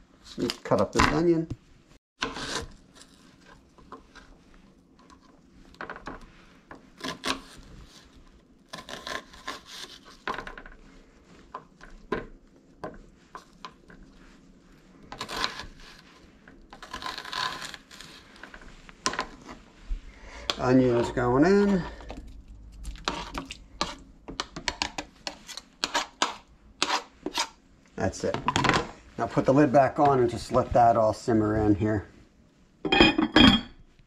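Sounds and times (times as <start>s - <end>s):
knife slicing onion: 8.7s - 10.3s, 25.2s - 27.6s.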